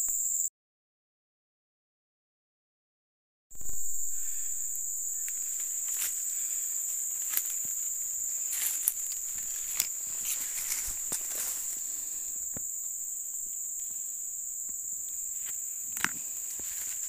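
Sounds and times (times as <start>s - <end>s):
insects chorus: 0.0s - 0.5s, 3.6s - 17.0s
footsteps in dry leaves: 5.2s - 12.4s, 15.2s - 17.0s.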